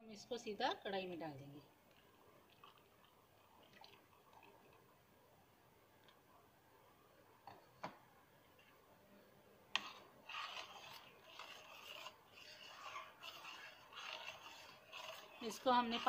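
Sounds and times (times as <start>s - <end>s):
spatula scraping pan: 9.8s - 16.0s.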